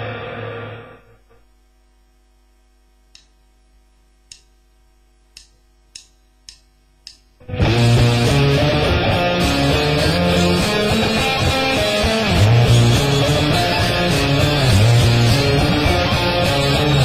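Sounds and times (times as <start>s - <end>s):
electric guitar playing: 0.0s - 1.3s, 7.4s - 17.0s
guitar amplifier humming: 0.0s - 17.0s
short clicks: 5.3s - 7.3s.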